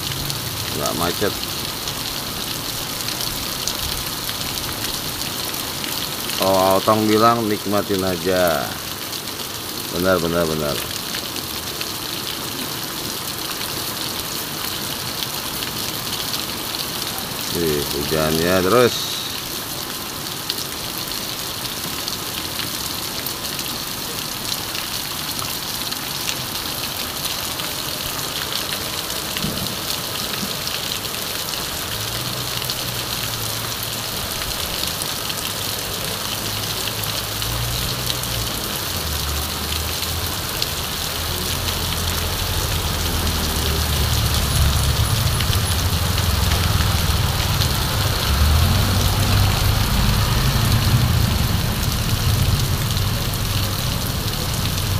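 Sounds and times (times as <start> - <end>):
heavy rain on street: 0.0 - 54.9
car passing: 37.2 - 54.9
motorcycles passing: 37.6 - 54.9.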